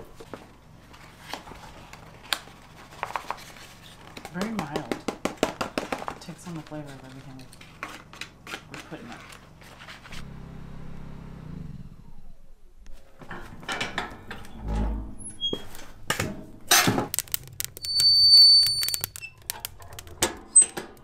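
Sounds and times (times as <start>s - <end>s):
sharp clicks and knocks: 16.1s - 21.0s
high steady squeak: 17.6s - 19.8s.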